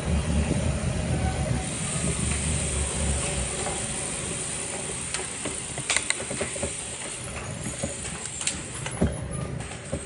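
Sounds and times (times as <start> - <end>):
tyres and wind hissing: 0.0 - 10.0
freewheel hubs ticking: 1.6 - 9.2.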